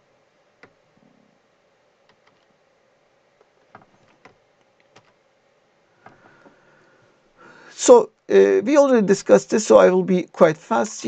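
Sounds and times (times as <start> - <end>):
computer mouse clicks: 2.0 - 2.5, 3.4 - 5.2.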